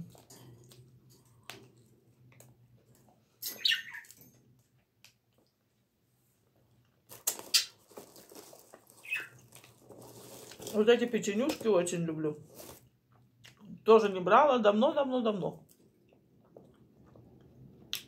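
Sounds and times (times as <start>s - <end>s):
plastic packaging crinkling: 7.1s - 11.8s, 12.4s - 12.9s.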